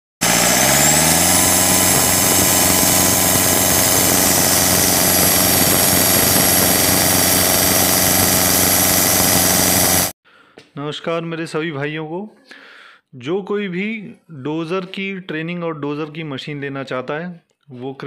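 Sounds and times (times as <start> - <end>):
car engine with turbo whine: 0.2 - 10.2.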